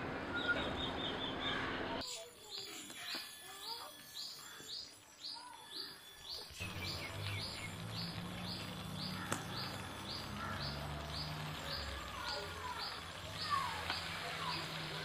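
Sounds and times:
birds calling: 0.2 - 15.0
bird chirping: 0.3 - 14.9.

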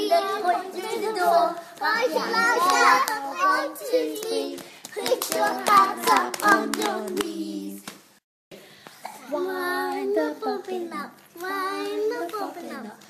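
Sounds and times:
children singing together: 0.0 - 7.8, 9.1 - 12.8
hand clapping: 2.6 - 3.2, 4.1 - 8.0.

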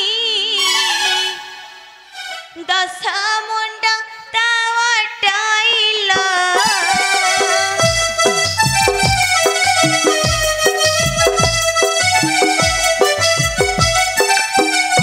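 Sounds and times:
drum beats: 5.9 - 15.0
sustained keyboard notes: 6.1 - 15.0.

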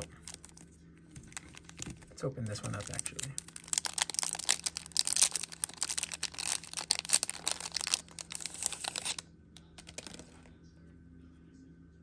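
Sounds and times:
cellophane crinkling: 0.0 - 10.5.

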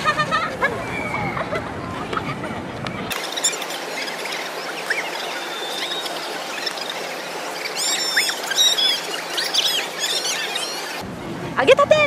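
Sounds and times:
high-pitched chirps: 3.1 - 11.0.

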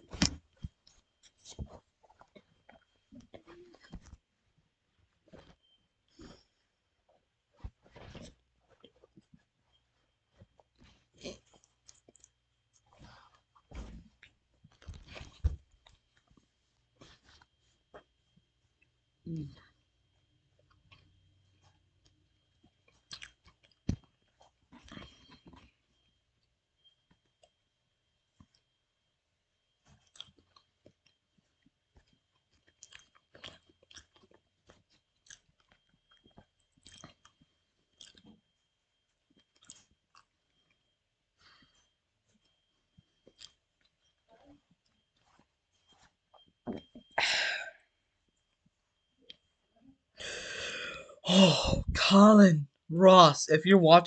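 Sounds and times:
person chewing food: 0.0 - 4.2, 8.1 - 26.2, 29.6 - 41.0, 41.6 - 47.1.

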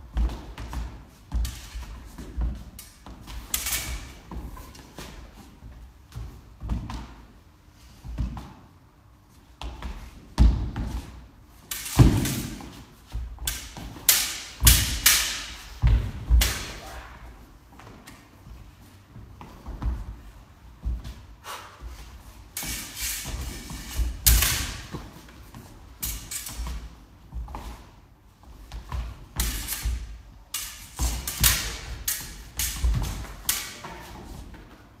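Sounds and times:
sabre blades striking: 13.5 - 15.7, 29.4 - 33.8
feet stamping on wooden floor: 14.6 - 16.6, 17.6 - 22.5.

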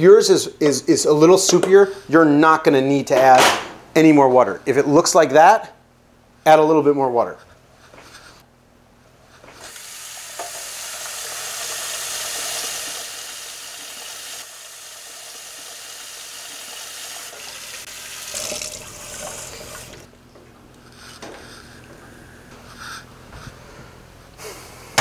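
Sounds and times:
tap running water into sink: 9.7 - 20.1.

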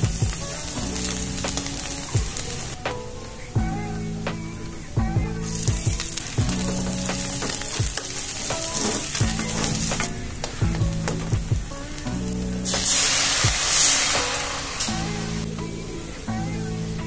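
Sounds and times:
onion sizzling in hot oil: 0.0 - 2.8, 5.4 - 15.6.

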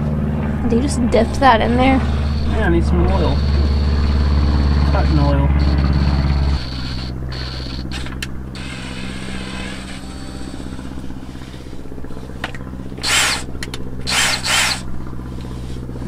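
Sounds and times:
low hum: 0.0 - 16.0
power drill boring metal: 2.0 - 11.8, 13.0 - 14.9.

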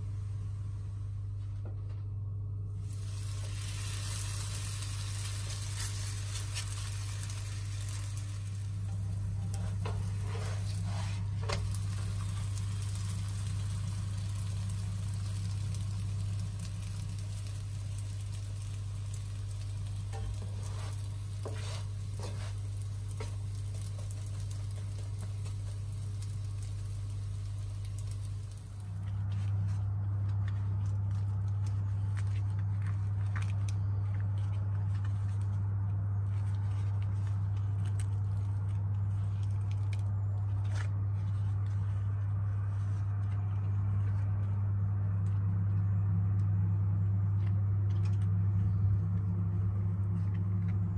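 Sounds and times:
low hum: 0.0 - 50.9
dough sizzling in frying pan: 2.8 - 35.5.

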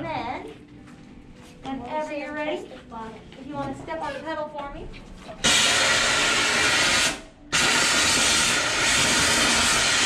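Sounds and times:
stuffing machine rushing hiss: 5.4 - 10.0.

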